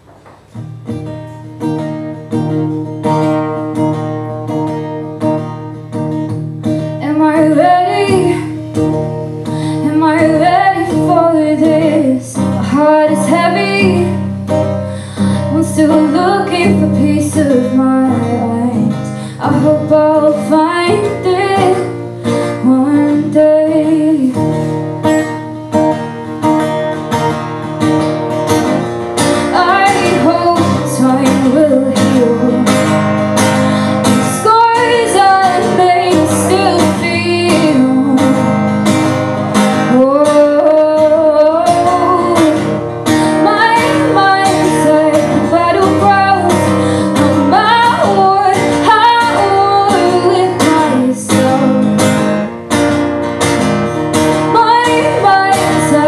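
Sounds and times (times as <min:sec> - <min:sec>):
acoustic guitar strumming: 0:00.0 - 0:56.0
woman singing: 0:06.7 - 0:25.4, 0:29.2 - 0:39.0, 0:39.6 - 0:52.5, 0:54.1 - 0:56.0.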